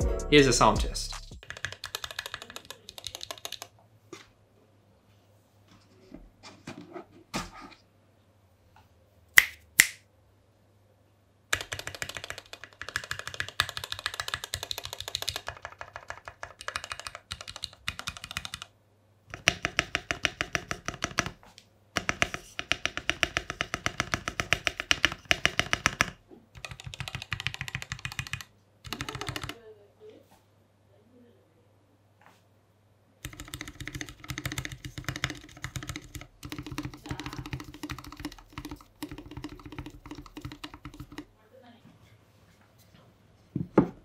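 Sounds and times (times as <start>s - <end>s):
mechanical keyboard typing: 1.4s - 3.7s, 11.5s - 18.7s, 19.3s - 21.4s, 22.0s - 29.6s, 33.2s - 41.3s.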